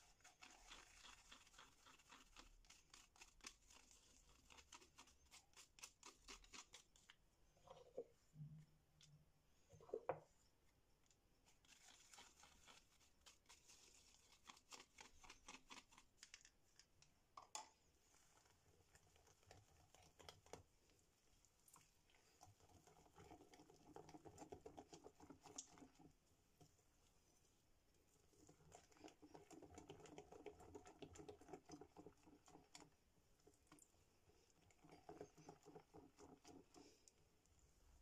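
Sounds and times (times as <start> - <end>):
whisk beating batter in glass bowl: 0.0 - 7.1.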